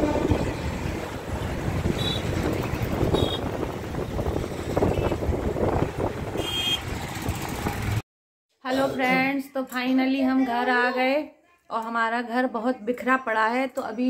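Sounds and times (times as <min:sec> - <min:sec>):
wind buffeting microphone: 0:00.0 - 0:07.9
engine and road rumble: 0:00.0 - 0:08.0.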